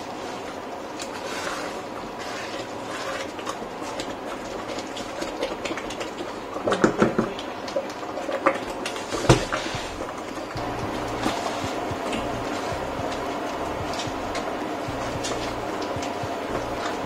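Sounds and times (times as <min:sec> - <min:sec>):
wooden spoon scraping a pot: 0:00.0 - 0:06.4
simmering lentils popping: 0:00.0 - 0:17.0.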